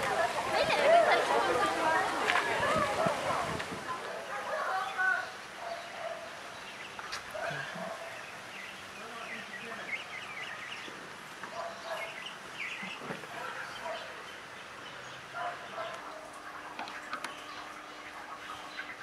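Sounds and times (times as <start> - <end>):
birds chirping: 0.0 - 19.0
faint steady hum: 14.2 - 19.0.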